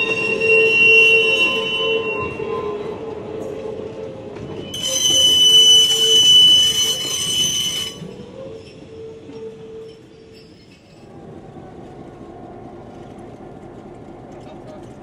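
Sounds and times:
train wheels squealing on rails: 0.0s - 11.3s
rumble of train wheels: 0.0s - 15.0s.

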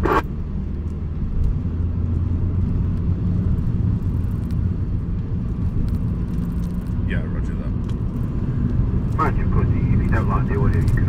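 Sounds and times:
radio speaker hiss: 0.0s - 0.2s, 9.2s - 11.0s
car engine and road rumble: 0.0s - 11.0s.

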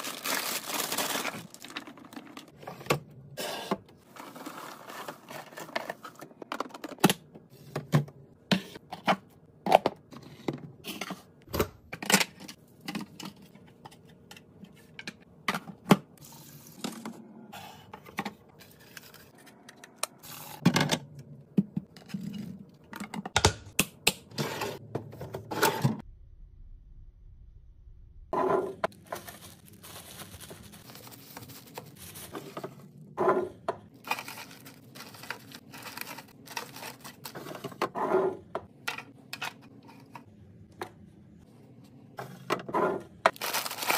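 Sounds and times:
leafy greens rustling: 29.0s - 32.3s.

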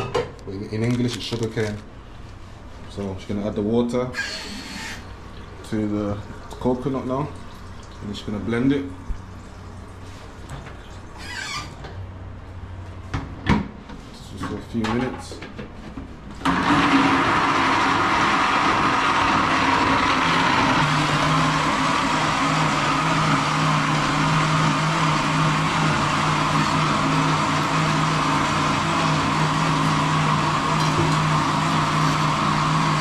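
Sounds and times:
electric blender whirring: 4.2s - 5.0s, 16.4s - 33.0s.

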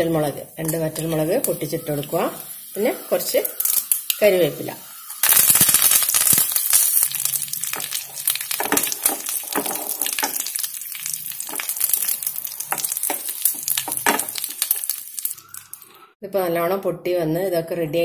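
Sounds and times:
spices frying in hot oil: 0.0s - 15.9s
sharp popping of mustard seeds: 5.1s - 15.9s.

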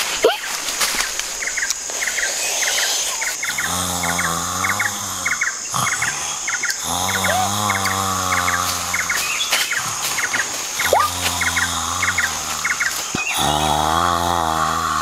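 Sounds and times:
high hiss: 0.0s - 15.0s
person snoring: 3.4s - 15.0s.

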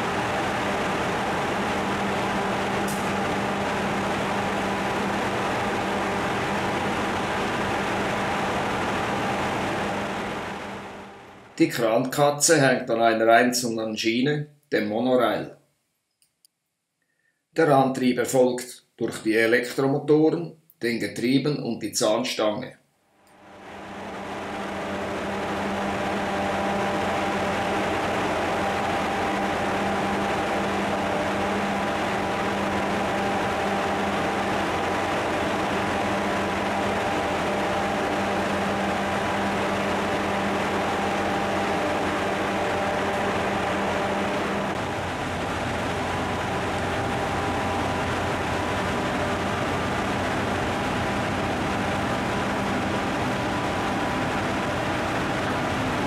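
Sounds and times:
whining motor tones: 0.0s - 11.6s, 23.3s - 56.0s
gantry crane mechanical hum: 0.0s - 13.4s, 23.3s - 56.0s.

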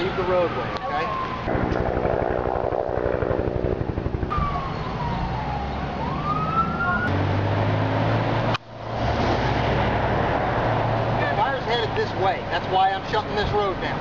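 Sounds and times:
emergency siren wailing: 0.0s - 8.5s
vehicle engine rumbling: 1.5s - 13.1s.

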